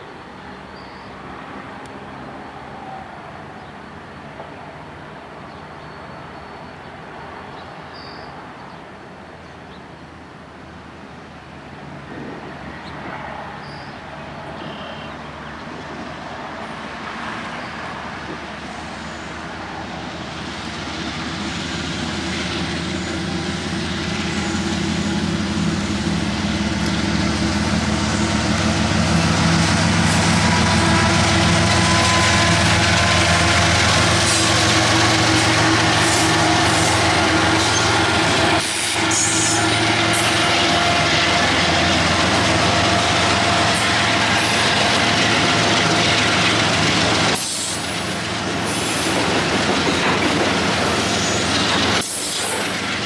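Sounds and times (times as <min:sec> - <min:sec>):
diesel locomotive engines: 0:00.0 - 0:53.0
train cars rumbling: 0:11.4 - 0:53.0
wheels clicking on rails: 0:41.8 - 0:53.0.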